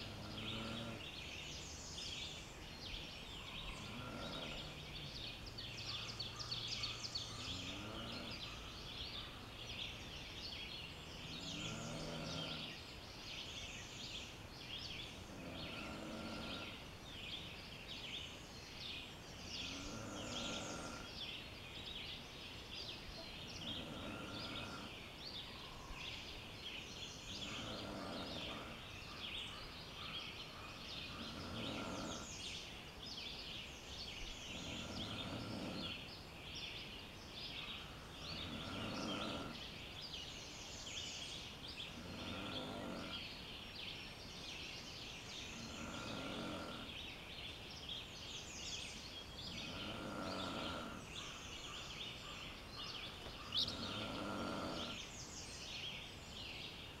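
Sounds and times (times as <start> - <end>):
low rough bird call: 0.0 - 9.9, 23.0 - 32.9, 48.4 - 55.7
birds chirping and trilling: 0.0 - 57.0.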